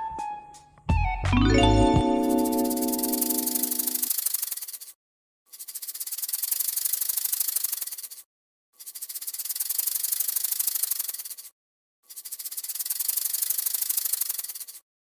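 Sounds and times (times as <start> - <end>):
rattlesnake rattling: 3.6 - 11.5, 12.1 - 14.8.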